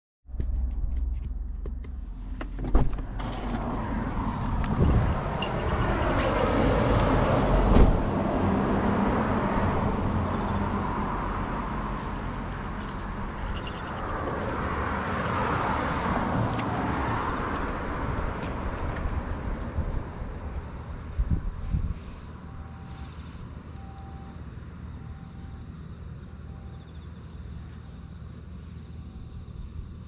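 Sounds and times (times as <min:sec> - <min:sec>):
passing traffic: 0:00.3 - 0:30.0
car door shutting: 0:01.6 - 0:03.8, 0:07.6 - 0:08.1.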